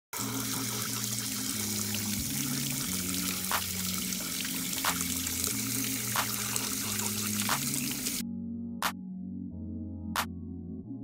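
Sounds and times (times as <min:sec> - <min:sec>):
water running through valve: 0:00.2 - 0:08.2
low music bass line: 0:01.5 - 0:11.0.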